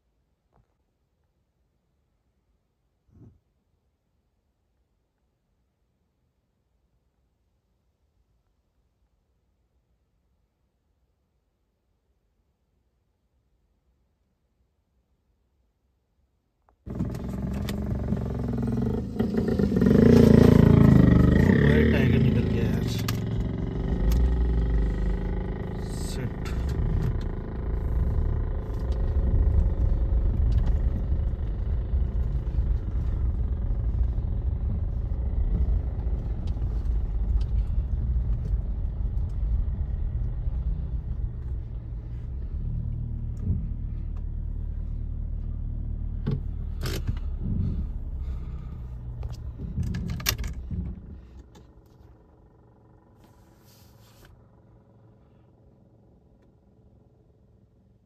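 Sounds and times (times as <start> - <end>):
low road rumble: 16.6 - 58.0
vehicle engine running: 16.9 - 58.0.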